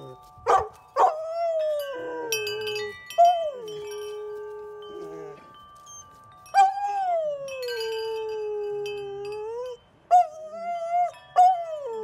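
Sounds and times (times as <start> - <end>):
metal wind chimes ringing: 0.0 - 12.0.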